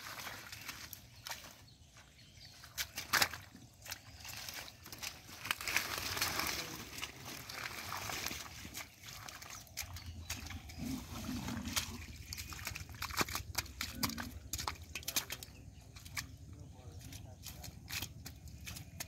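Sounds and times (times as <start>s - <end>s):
wet plant stems rustling and snapping: 2.6s - 16.4s
wet clicks and slaps of fish: 2.8s - 3.9s, 12.3s - 16.3s.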